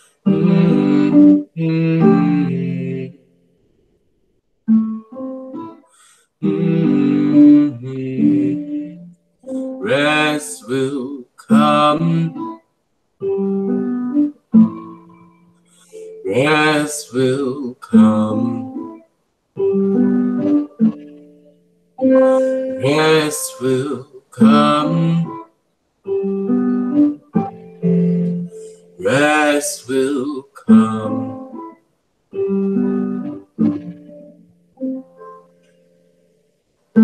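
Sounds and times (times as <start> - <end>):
person singing a lullaby: 0.0 - 3.3, 5.6 - 12.6, 15.8 - 19.0, 22.0 - 25.5, 26.1 - 31.8.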